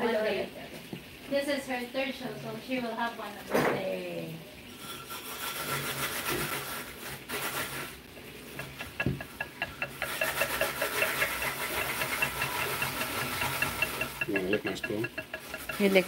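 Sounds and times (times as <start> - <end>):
whisk scraping glass bowl: 4.7 - 16.0
knock: 8.6 - 15.9.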